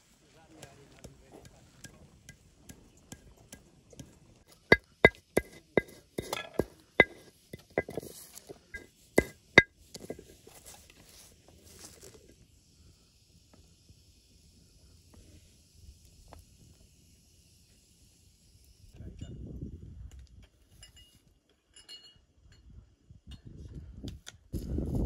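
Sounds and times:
stone knocking on stone slab: 4.5s - 10.4s
grains sifting rustle: 10.0s - 12.4s.

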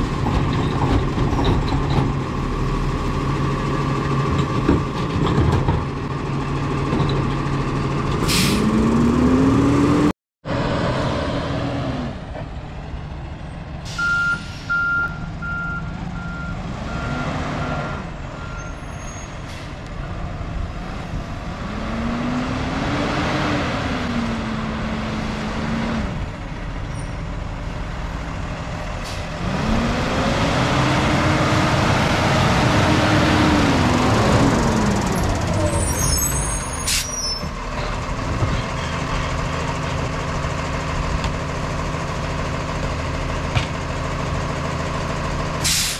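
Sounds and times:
truck diesel engine revving: 7.5s - 12.3s, 15.0s - 18.7s, 19.8s - 26.8s, 27.4s - 45.9s.

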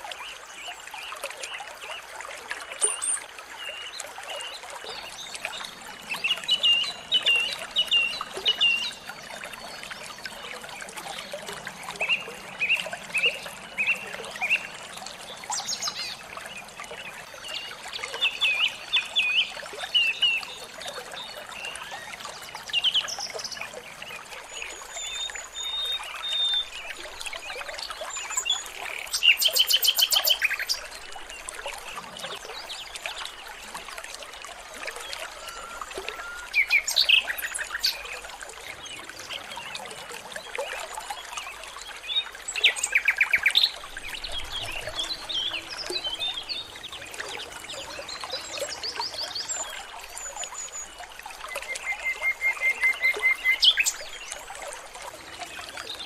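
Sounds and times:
water trickling: 0.0s - 56.0s
songbirds chirping: 34.7s - 54.4s.

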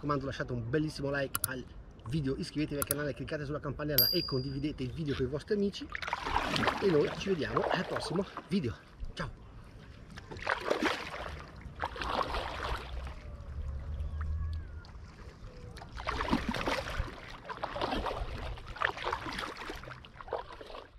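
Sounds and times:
paddle strokes splashing water: 5.8s - 20.9s.

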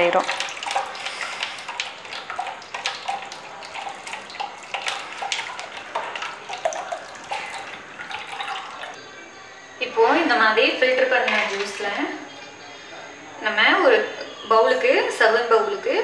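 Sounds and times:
juice splashing into a bowl: 0.1s - 9.0s.

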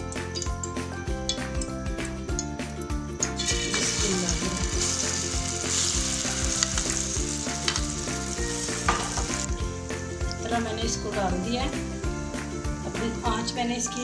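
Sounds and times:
egg mixture sizzling in a pan: 3.2s - 13.6s.

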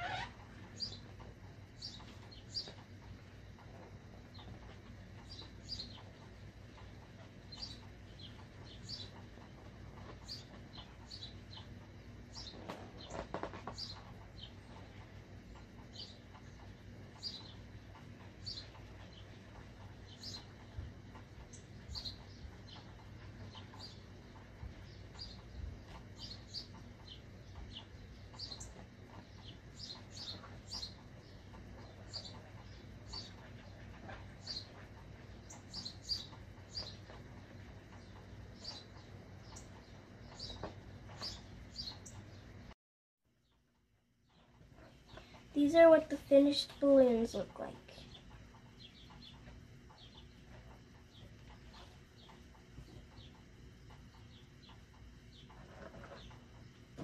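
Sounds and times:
marker squeaking on balloon: 0.0s - 0.4s
low steady hum: 0.0s - 57.0s.

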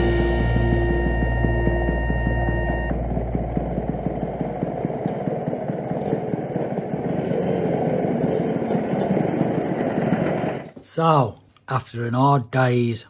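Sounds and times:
background music: 0.0s - 4.0s
scooter engine running: 0.0s - 10.7s.

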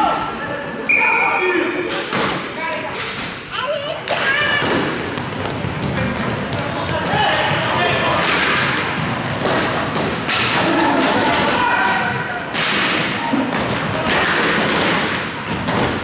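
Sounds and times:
skate wheels rolling and scraping: 2.7s - 16.0s
sticks and puck hitting boards: 4.1s - 16.0s.

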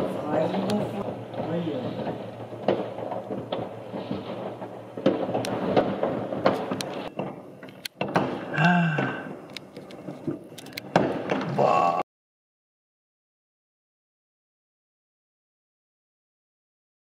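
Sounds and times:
sharp firework cracks: 0.0s - 11.7s
distant fireworks rumble: 0.0s - 12.0s.

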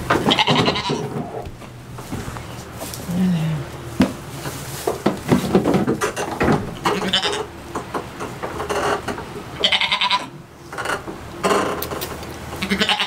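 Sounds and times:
knocks and rustling: 0.0s - 3.1s, 3.9s - 9.5s
goat bleating: 0.3s - 1.4s, 6.9s - 7.5s, 9.6s - 10.3s, 12.6s - 13.0s.

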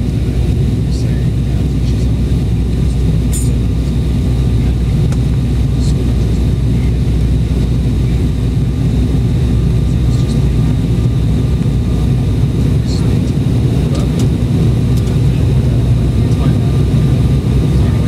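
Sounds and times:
jet engine and airflow roar: 0.0s - 18.0s.

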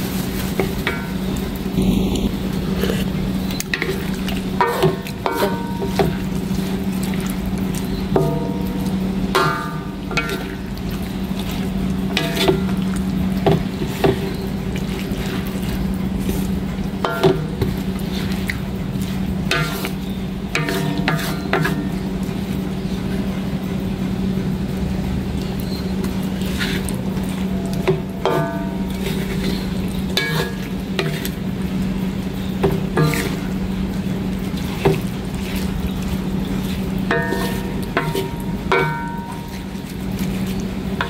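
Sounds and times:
liquid simmering: 0.0s - 41.0s
steady low hum: 0.0s - 41.0s
spatula scraping a wok: 17.2s - 22.0s, 26.4s - 27.0s, 27.8s - 31.5s, 32.6s - 33.6s, 34.6s - 40.6s.

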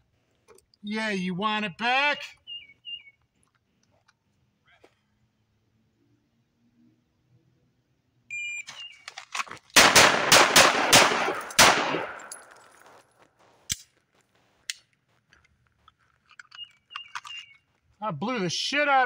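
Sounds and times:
pistol shots ringing out: 9.8s - 12.7s.

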